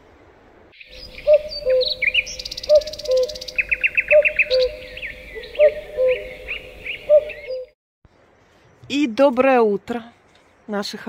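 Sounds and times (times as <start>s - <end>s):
songbirds chirping and trilling: 0.7s - 9.1s.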